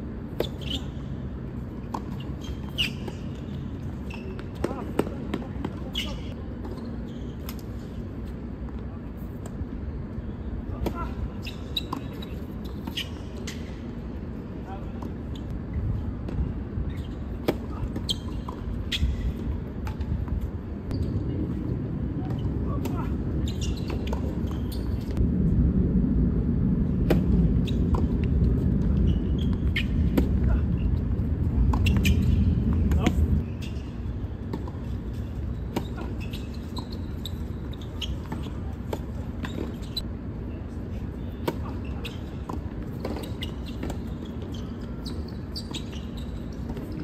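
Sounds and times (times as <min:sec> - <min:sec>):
low rumble: 0:25.1 - 0:33.6.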